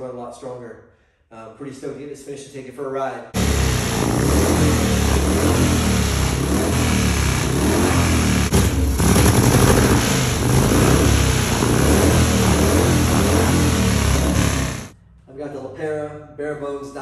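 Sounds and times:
motorcycle engine idling loudly: 0:03.4 - 0:14.9.

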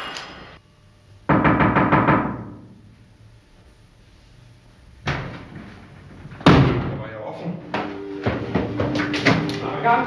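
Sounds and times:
knocking on wooden door: 0:01.3 - 0:02.6.

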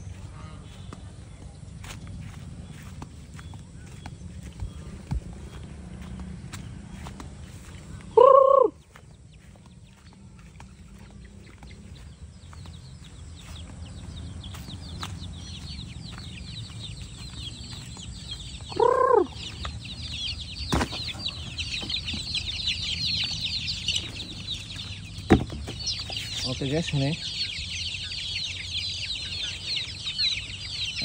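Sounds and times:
chicks peeping: 0:00.0 - 0:31.0
loud chicken call: 0:08.1 - 0:08.9, 0:18.6 - 0:19.6.

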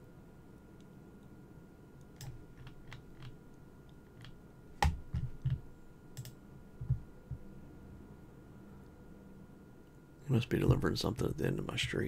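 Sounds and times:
computer keyboard keystrokes: 0:02.1 - 0:03.4, 0:04.1 - 0:05.6, 0:06.2 - 0:07.0.

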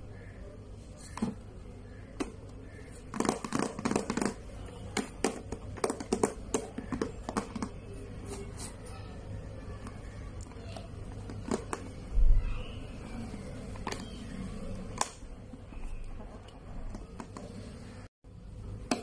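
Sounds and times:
plastic box clicks and knocks: 0:03.1 - 0:04.4, 0:05.0 - 0:07.8.

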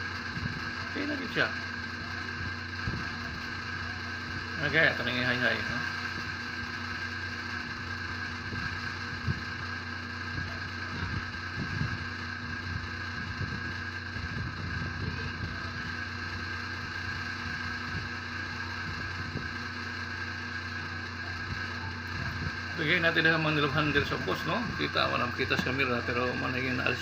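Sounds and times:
machine hum: 0:00.0 - 0:27.0.

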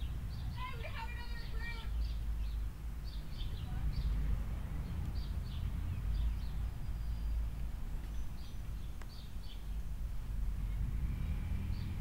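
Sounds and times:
steady low rumble: 0:00.0 - 0:09.0.

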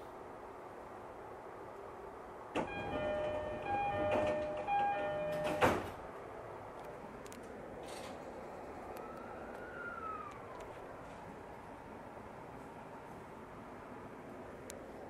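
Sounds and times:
sliding doors thudding shut: 0:02.6 - 0:06.0
two-tone door chime: 0:02.6 - 0:06.0.

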